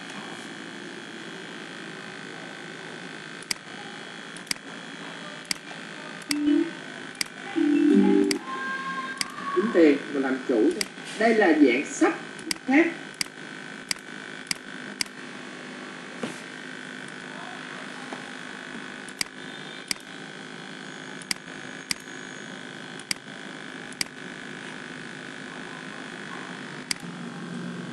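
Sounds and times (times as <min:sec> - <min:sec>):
background hum and hiss: 0:00.0 - 0:27.9
computer mouse clicking: 0:03.4 - 0:03.6, 0:04.4 - 0:04.6, 0:12.4 - 0:15.2, 0:19.1 - 0:20.1, 0:23.0 - 0:23.3.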